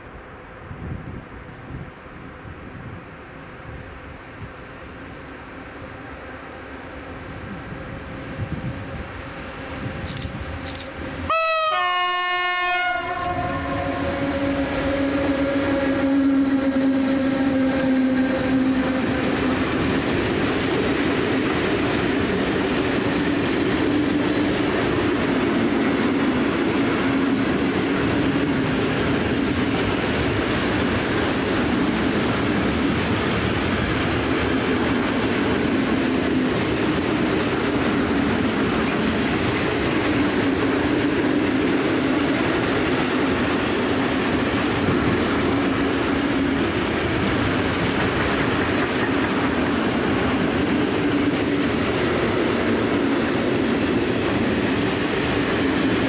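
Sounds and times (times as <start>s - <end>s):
freight train rumble and wheel clatter: 0.0s - 56.0s
locomotive horn: 11.3s - 19.5s.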